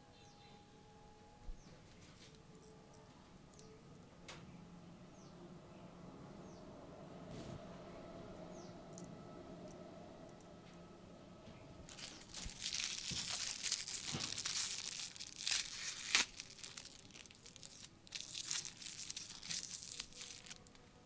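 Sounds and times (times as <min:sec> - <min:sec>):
aluminium foil crinkling and tearing: 0:11.9 - 0:20.9.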